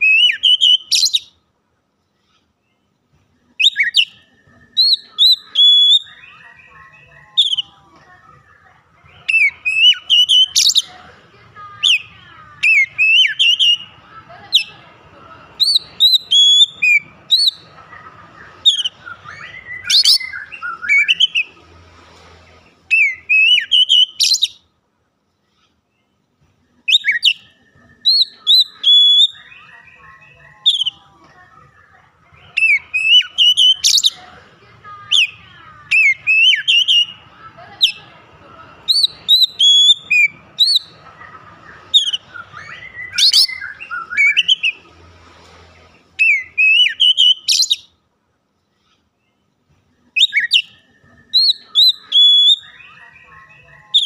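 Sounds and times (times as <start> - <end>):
bird singing whistled song: 0.0 - 1.4, 3.6 - 6.8, 7.4 - 7.7, 9.2 - 10.9, 12.6 - 13.9, 15.6 - 17.6, 18.6 - 21.5, 22.9 - 24.6, 26.9 - 31.0, 32.5 - 34.2, 35.9 - 37.2, 38.9 - 40.9, 41.9 - 44.8, 46.2 - 47.9, 50.2 - 54.0.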